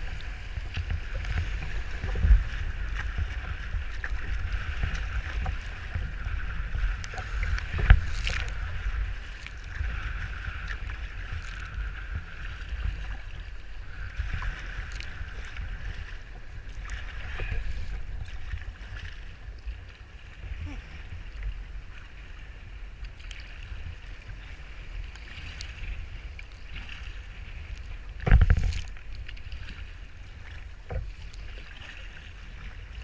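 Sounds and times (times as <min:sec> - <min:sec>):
wind buffeting microphone: 0:00.0 - 0:22.5
waves splashing against hull: 0:00.0 - 0:33.0.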